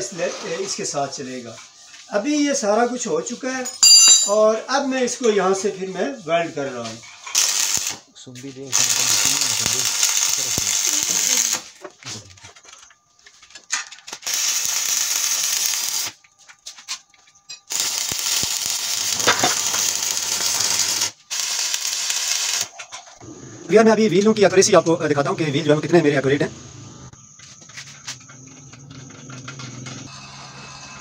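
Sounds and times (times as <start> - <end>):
welding arc hissing and crackling: 5.5 - 11.8, 14.0 - 16.7, 17.6 - 22.8.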